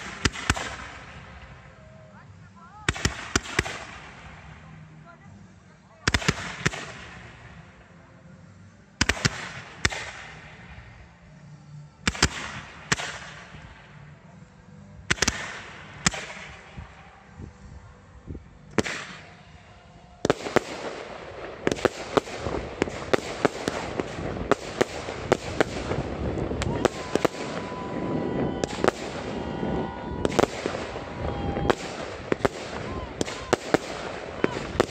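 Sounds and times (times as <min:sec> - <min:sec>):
fireworks crackling: 0:00.0 - 0:08.0, 0:09.0 - 0:14.3, 0:15.0 - 0:34.9
fireworks launch reports: 0:00.0 - 0:34.9
fireworks hissing: 0:20.3 - 0:34.9.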